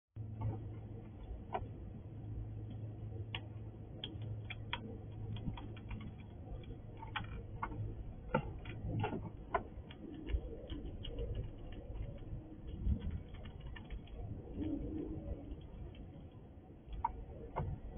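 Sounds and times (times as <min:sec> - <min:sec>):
steady low hum: 0:00.2 - 0:17.9
squirrel cracking seeds: 0:03.2 - 0:16.1.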